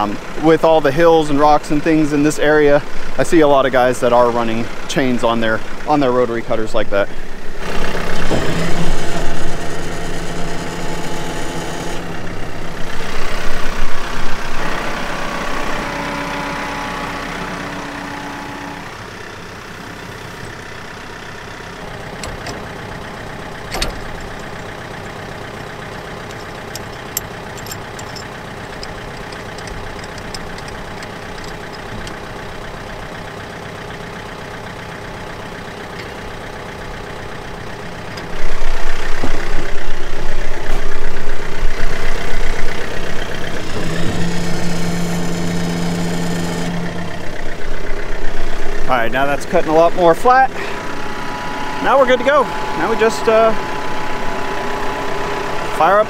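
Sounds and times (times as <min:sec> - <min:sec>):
tractor diesel engine idling: 0:00.0 - 0:56.0
metal clank: 0:23.6 - 0:25.2, 0:26.0 - 0:32.2
light metal clicks: 0:26.2 - 0:32.2.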